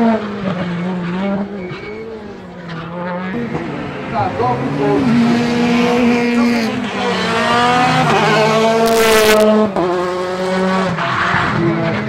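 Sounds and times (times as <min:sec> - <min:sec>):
rally car engine accelerating: 0:00.0 - 0:12.0.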